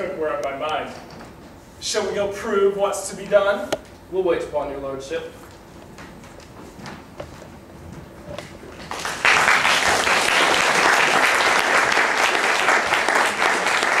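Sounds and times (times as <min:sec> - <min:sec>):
audience applauding: 0:08.8 - 0:14.0.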